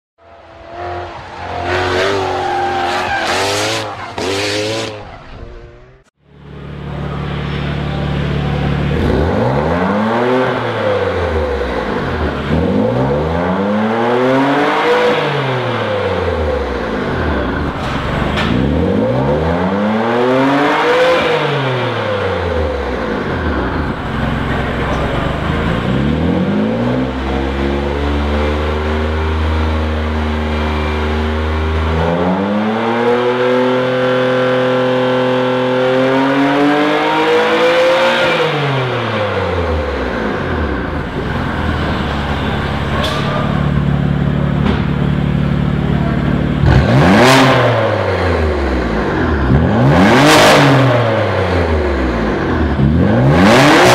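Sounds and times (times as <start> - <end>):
car engine running: 5.1 - 13.6, 15.8 - 20.3, 22.1 - 32.0, 39.0 - 53.6.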